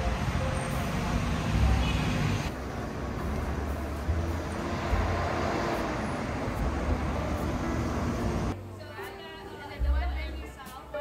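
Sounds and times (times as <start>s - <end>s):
road traffic rumble and hiss: 0.0s - 8.6s.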